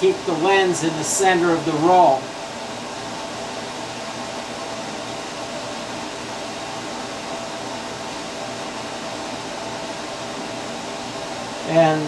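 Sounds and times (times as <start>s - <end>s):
fan whooshing hiss: 0.0s - 12.0s.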